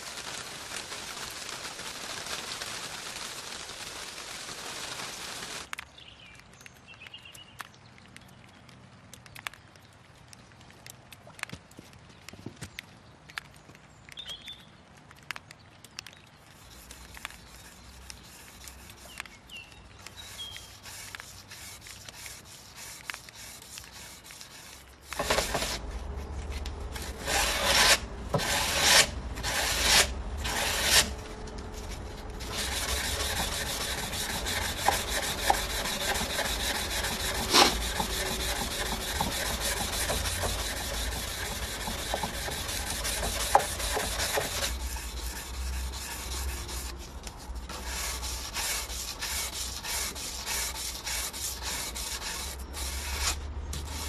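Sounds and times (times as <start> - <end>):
abrasive rasping on blade: 32.4 - 46.9, 47.7 - 54.0.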